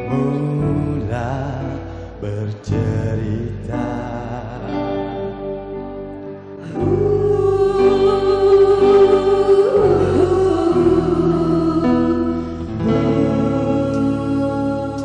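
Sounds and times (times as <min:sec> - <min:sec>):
live singing with band: 0:06.5 - 0:15.0.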